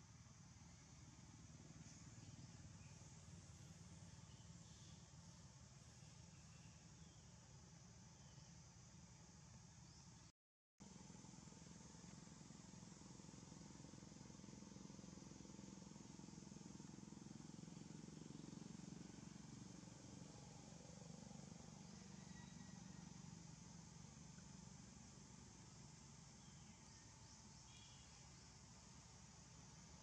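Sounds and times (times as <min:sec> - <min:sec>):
faint background hiss: 0:00.0 - 0:30.0.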